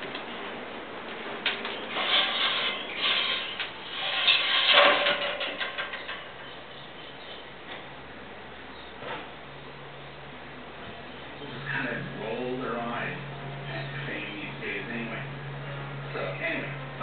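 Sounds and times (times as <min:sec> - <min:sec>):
rasping scraping bursts: 0:01.6 - 0:06.4.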